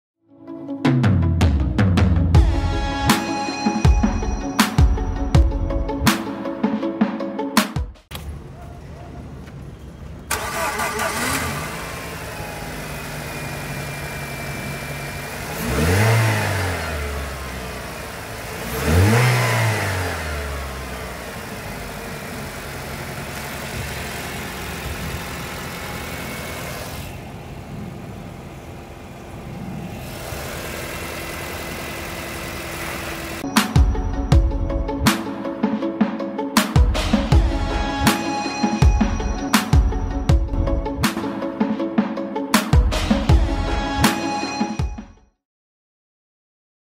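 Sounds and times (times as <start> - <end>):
car engine idling and revving: 8.1 - 35.5.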